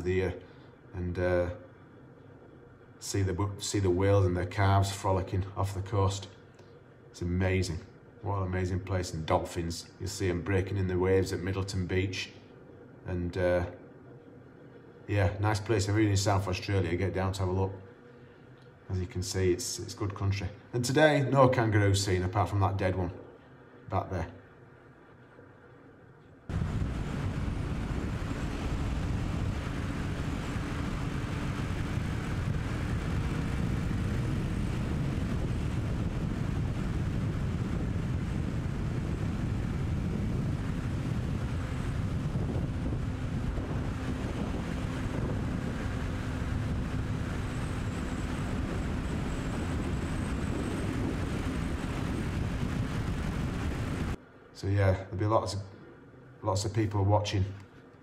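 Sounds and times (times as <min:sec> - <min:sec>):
wind buffeting microphone: 0:26.5 - 0:54.2.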